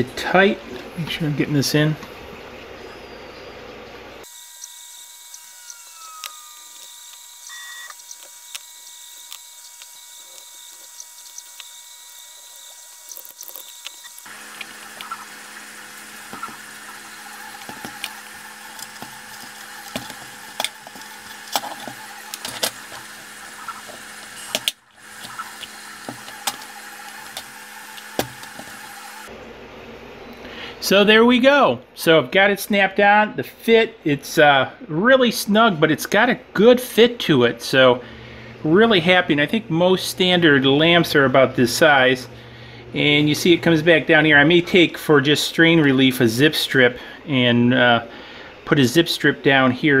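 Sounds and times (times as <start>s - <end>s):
faint electrical whine: 0.0s - 50.0s
plastic parts clicking: 17.4s - 29.0s.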